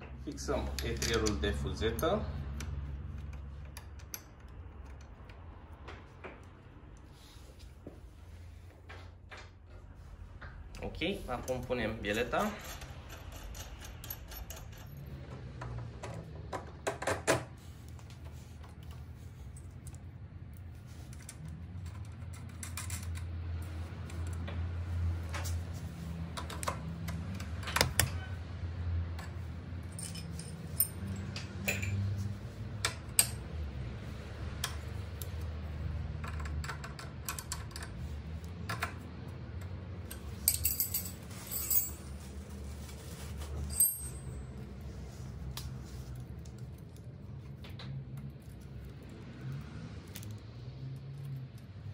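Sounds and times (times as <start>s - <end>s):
metallic clicks of wrench and parts: 0.3s - 5.4s, 11.5s - 15.1s.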